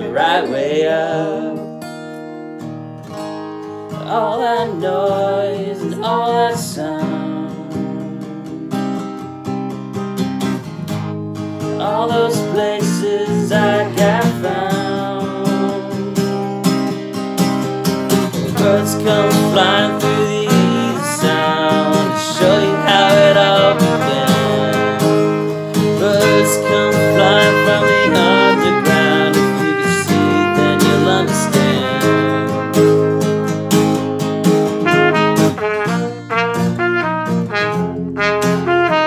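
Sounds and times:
person singing: 0:00.0 - 0:01.8, 0:04.0 - 0:08.9, 0:11.8 - 0:16.4, 0:18.3 - 0:33.4
strummed acoustic guitar: 0:00.0 - 0:39.0
muted trumpet melody: 0:18.8 - 0:34.1, 0:34.7 - 0:39.0.

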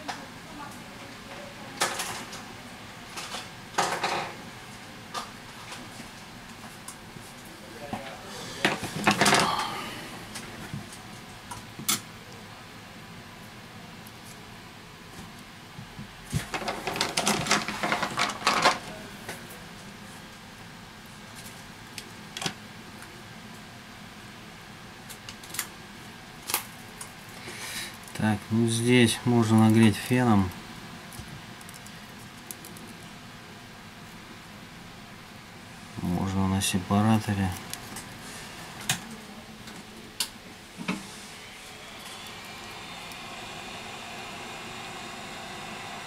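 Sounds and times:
background hum: 0:00.0 - 0:12.6
hiss: 0:40.8 - 0:46.0.

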